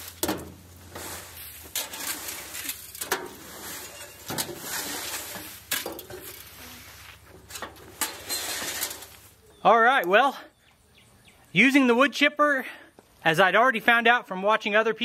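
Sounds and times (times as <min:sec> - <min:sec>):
rakes scraping mulch: 0:00.0 - 0:09.6.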